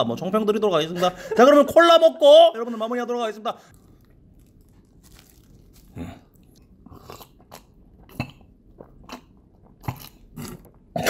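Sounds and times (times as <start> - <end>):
person gulping a drink: 3.9 - 11.0.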